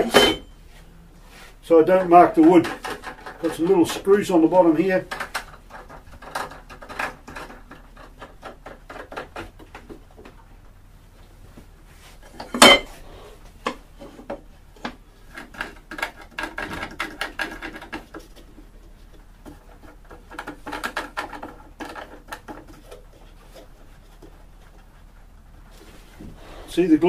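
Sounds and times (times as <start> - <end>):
wooden boards knocking and scraping: 2.2 - 4.0, 13.7 - 24.4.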